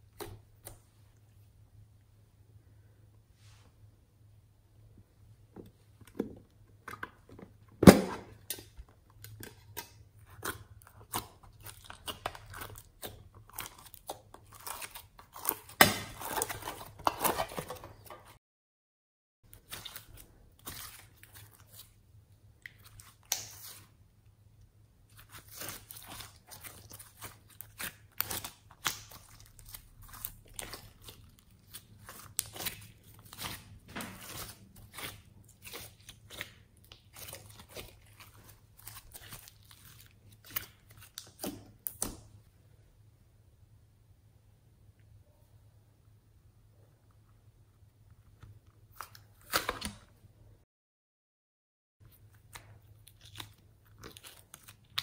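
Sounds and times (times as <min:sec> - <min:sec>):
squishing slime with beads: 0:08.3 - 0:18.3, 0:19.5 - 0:42.4, 0:52.0 - 0:55.0.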